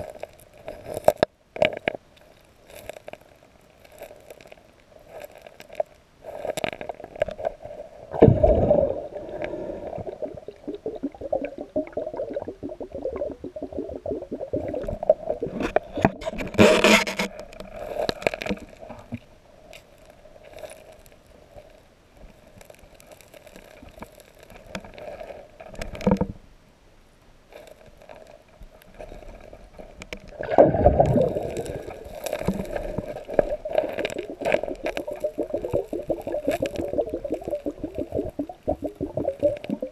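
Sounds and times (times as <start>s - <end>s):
hand digging in gravel underwater: 0.0s - 18.9s, 19.8s - 26.1s, 28.9s - 39.9s
muffled underwater rocks scraping: 4.0s - 21.1s, 28.9s - 39.9s.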